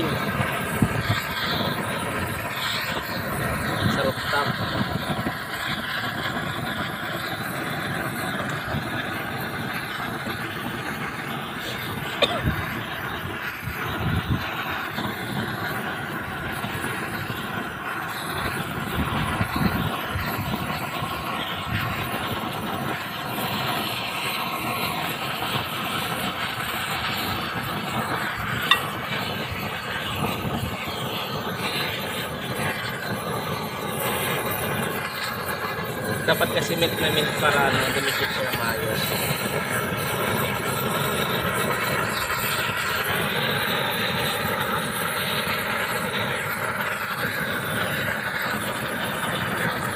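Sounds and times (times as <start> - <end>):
gas torch flame roaring: 0.0 - 49.9.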